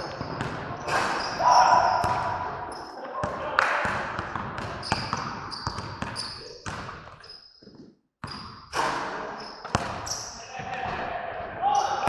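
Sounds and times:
basketballs bouncing on wooden floor: 0.0 - 2.4, 3.2 - 11.0
sneaker squeaks: 0.0 - 3.0, 4.8 - 10.4.

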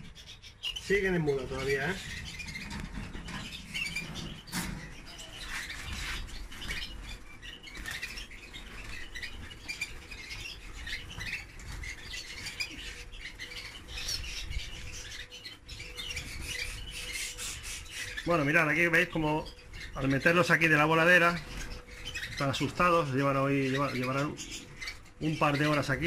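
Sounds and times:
canaries chirping: 0.0 - 26.0
wings fluttering: 0.0 - 26.0.

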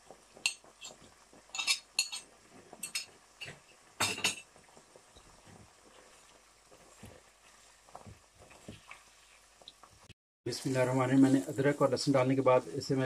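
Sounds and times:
utensil clinking against wok: 0.4 - 3.1.

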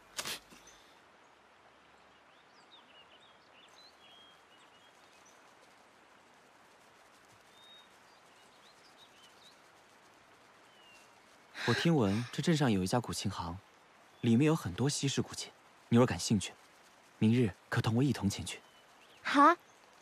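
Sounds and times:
soft steady hiss: 0.0 - 20.0
bird chirps: 1.9 - 5.6, 7.4 - 9.7.

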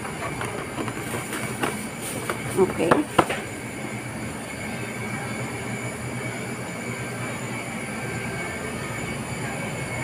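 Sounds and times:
faint high whine: 3.4 - 10.0.

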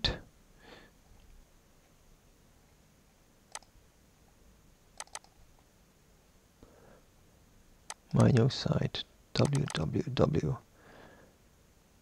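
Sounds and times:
computer mouse clicking: 3.5 - 3.7, 5.0 - 5.4, 7.9 - 8.3, 9.4 - 9.9.

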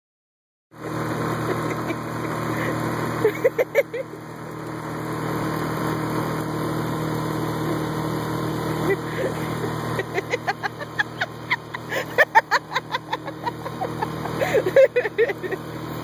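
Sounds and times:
outboard motor running: 0.7 - 16.0
people laughing: 1.4 - 4.2, 8.8 - 15.7.

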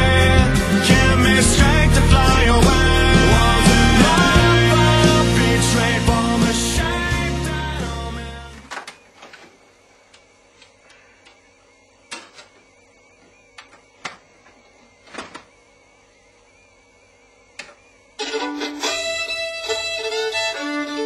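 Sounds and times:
violin and plucked strings music: 18.2 - 21.0.

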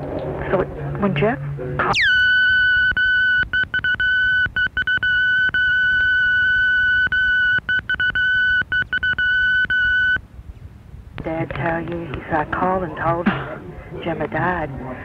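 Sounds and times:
high electronic tone: 1.8 - 10.2.

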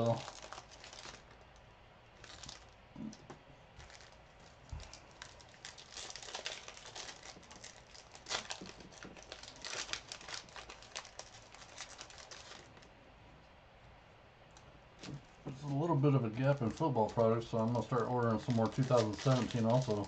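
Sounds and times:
foil wrappers crinkling and tearing: 0.0 - 1.5, 2.2 - 3.2, 3.8 - 12.9, 15.0 - 20.0.

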